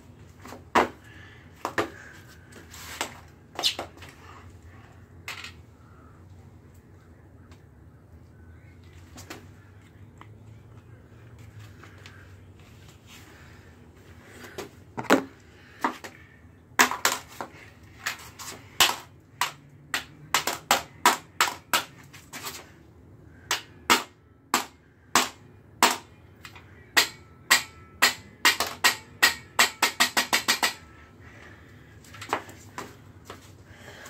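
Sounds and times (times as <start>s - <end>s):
rod striking phone on concrete: 27.0s - 30.9s.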